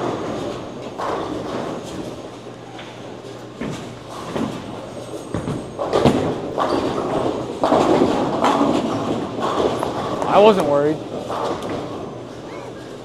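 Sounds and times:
bowling lanes clatter: 0:00.0 - 0:13.0
bowling ball rolling down lane: 0:03.6 - 0:12.5.

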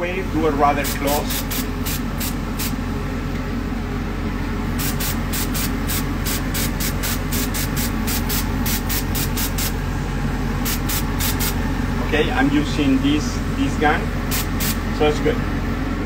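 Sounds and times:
steady low hum: 0:00.0 - 0:16.0
airbrush hissing: 0:00.7 - 0:02.8, 0:04.7 - 0:09.8, 0:10.6 - 0:11.7, 0:14.2 - 0:14.8.

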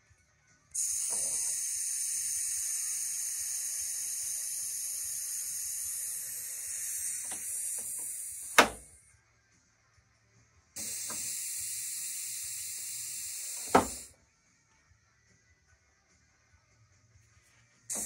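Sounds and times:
compressed air hissing: 0:00.8 - 0:08.9, 0:10.8 - 0:14.1.

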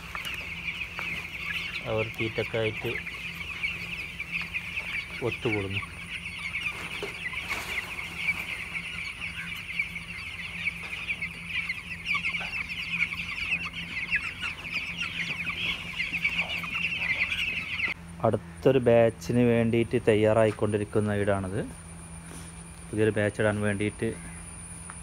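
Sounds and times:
chicks peeping: 0:00.0 - 0:25.0
steady low hum: 0:00.0 - 0:25.0.

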